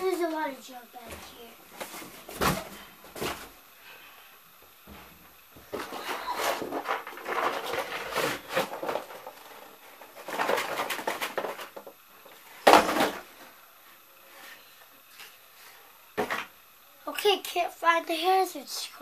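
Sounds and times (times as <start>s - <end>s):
rustling and plastic clatter: 1.0s - 3.6s, 4.9s - 13.6s.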